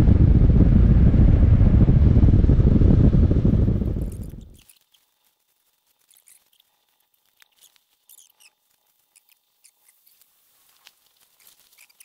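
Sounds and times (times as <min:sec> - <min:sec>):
faint high-pitched chirps and ticks: 0:04.0 - 0:12.0.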